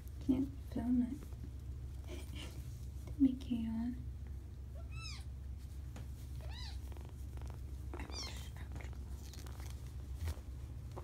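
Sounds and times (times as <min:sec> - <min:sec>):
kitten mewing: 0:04.8 - 0:05.3, 0:06.4 - 0:09.0.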